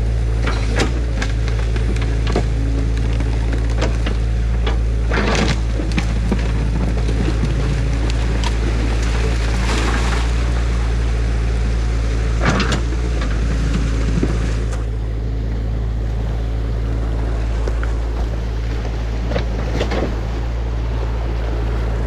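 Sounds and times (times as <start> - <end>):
excavator engine running: 0.0 - 22.0
water rushing through a breach: 5.3 - 14.8.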